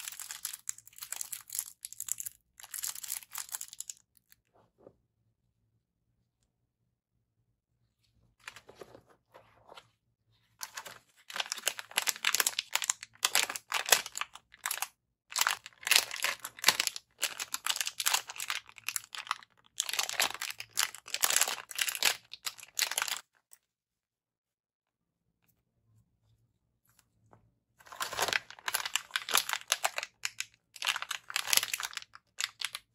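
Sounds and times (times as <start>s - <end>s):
plastic packaging crinkling: 10.6s - 23.2s, 27.9s - 32.9s.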